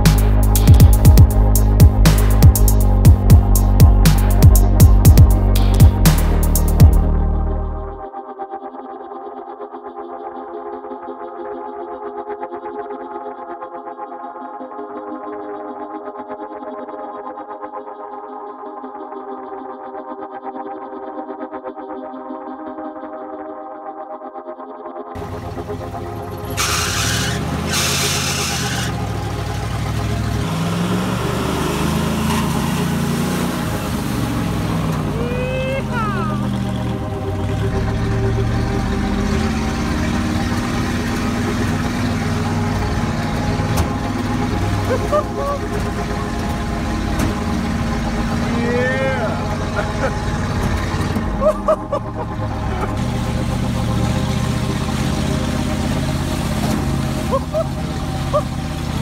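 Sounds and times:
truck engine driving through mud: 25.2s - 59.0s.

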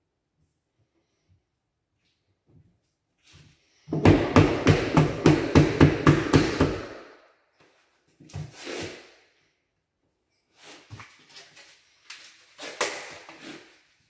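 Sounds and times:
short scrape: 8.4s - 9.2s.

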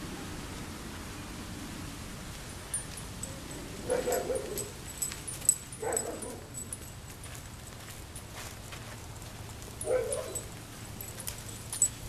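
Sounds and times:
dog barking or whining: 3.8s - 4.8s, 5.8s - 6.6s, 9.8s - 10.5s.

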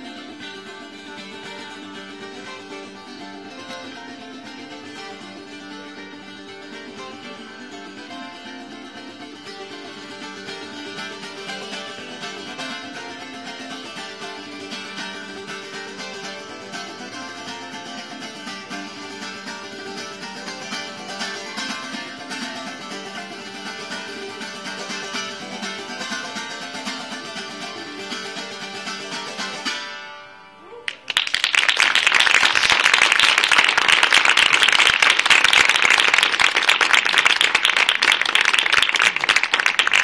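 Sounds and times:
plucked folk guitar melody: 0.0s - 31.3s, 31.9s - 40.0s
audience applause: 30.9s - 40.0s.

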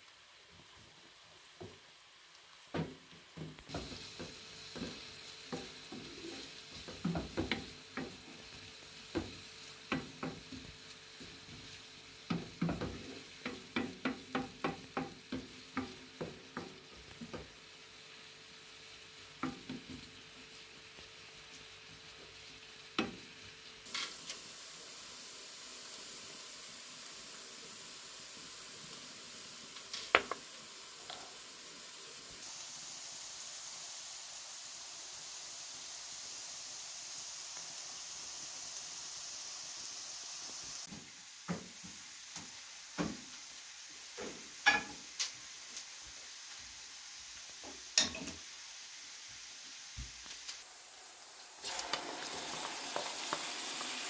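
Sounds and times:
onions sizzling in oil: 0.0s - 54.0s
spoons knocking on pan: 2.8s - 8.4s, 9.1s - 10.7s, 12.3s - 17.5s, 44.6s - 45.0s.

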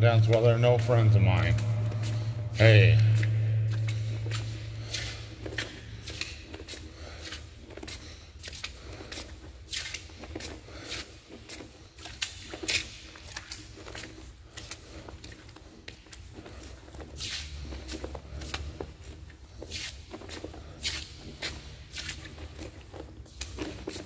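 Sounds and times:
footsteps on gritty concrete: 0.2s - 12.9s.

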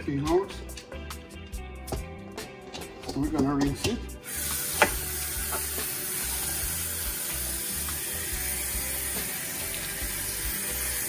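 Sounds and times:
faucet water running into steel bowl: 4.2s - 11.0s.

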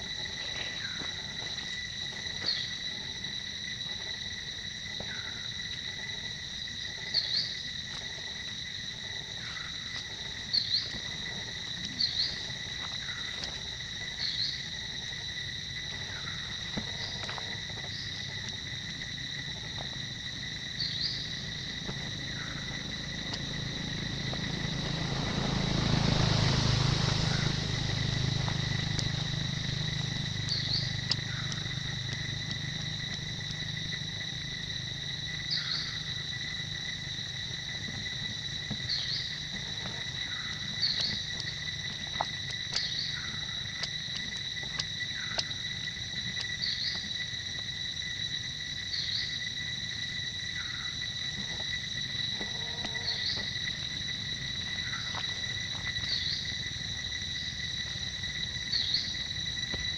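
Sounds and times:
insects droning: 0.0s - 59.9s
rush of noise with low hum: 16.0s - 43.9s.

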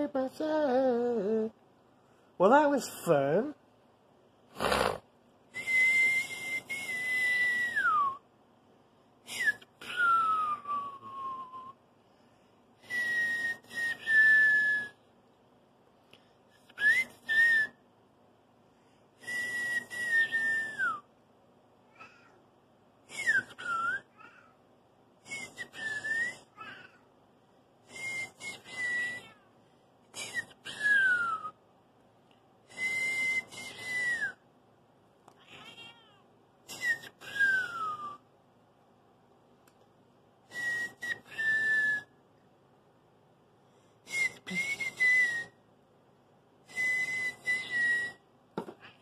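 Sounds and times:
person whistling: 5.6s - 8.2s, 9.3s - 11.8s, 12.8s - 15.0s, 16.7s - 17.8s, 19.2s - 21.0s, 23.1s - 24.1s, 25.3s - 26.5s, 27.9s - 29.4s, 30.2s - 31.6s, 32.7s - 34.4s, 36.7s - 38.2s, 40.5s - 42.1s, 44.1s - 45.6s, 46.7s - 48.2s.

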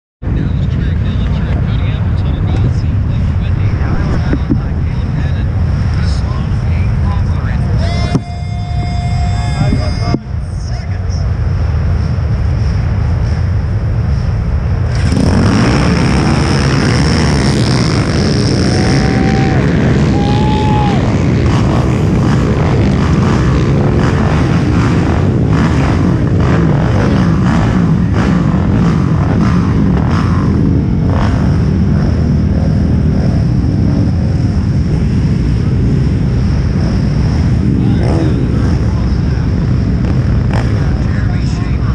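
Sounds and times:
quad engines revving hard: 14.8s - 41.9s.

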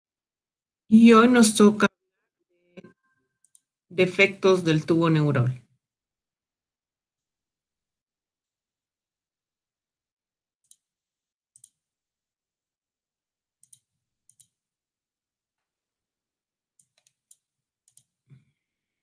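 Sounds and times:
computer mouse clicks: 2.8s - 3.7s, 10.6s - 10.9s, 11.6s - 11.8s, 13.6s - 14.6s, 16.8s - 18.4s.

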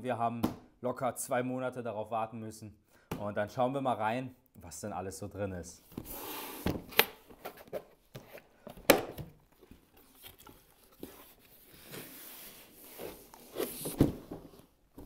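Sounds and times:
cardboard scraping and rubbing: 9.7s - 14.7s.

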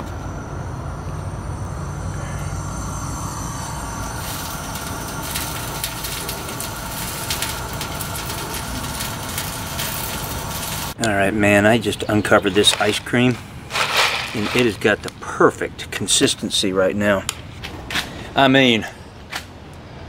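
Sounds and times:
gas burner flames rumbling: 0.0s - 20.0s
hiss with sharp crackles: 2.7s - 11.0s.

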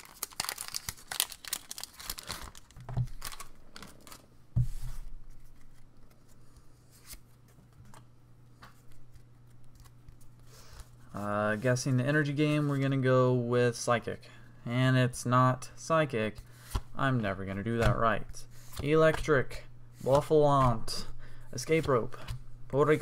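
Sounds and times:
cards rustling and clicking: 0.0s - 4.2s, 5.3s - 10.9s
foil wrapper crinkling and tearing: 0.0s - 4.2s.

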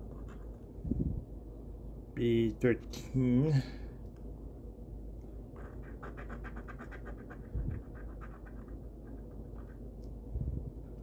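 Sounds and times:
coin scratching lottery ticket: 5.6s - 9.8s.

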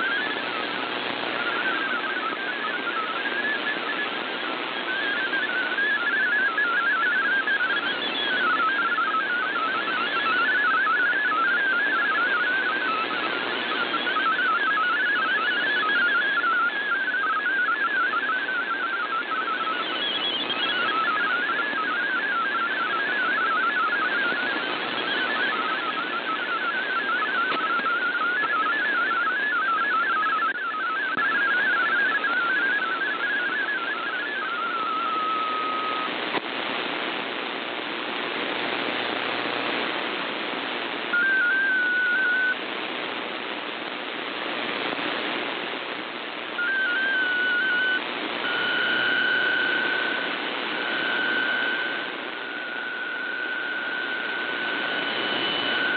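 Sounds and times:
warbling data tones: 0.0s - 37.2s, 40.7s - 55.9s
radio static hiss: 0.0s - 55.9s
steady signal tone: 0.0s - 55.9s
stepped digital bursts: 5.0s - 36.2s, 46.6s - 55.9s.

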